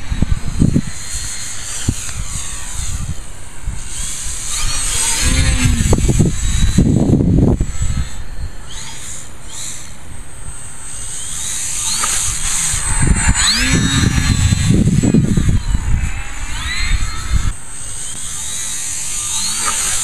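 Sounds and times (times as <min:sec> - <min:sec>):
wind buffeting microphone: 0:00.0 - 0:08.8, 0:11.4 - 0:18.2
electric model plane motor whining: 0:00.0 - 0:20.0.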